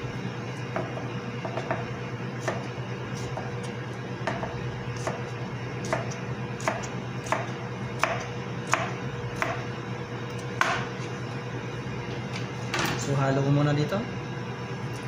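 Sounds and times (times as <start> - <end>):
steady low hum: 0.0 - 15.0
knife chopping on plastic board: 0.7 - 9.6, 10.6 - 10.9.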